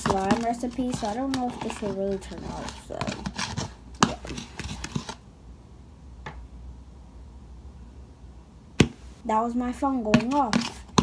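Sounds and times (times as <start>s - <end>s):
slime squelching in a bowl: 0.0s - 5.2s, 9.7s - 11.0s.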